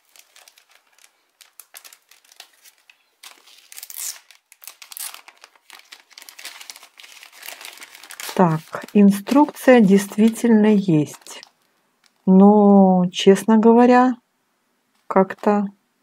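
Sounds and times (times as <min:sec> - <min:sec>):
plastic packet crinkling: 0:00.0 - 0:12.3.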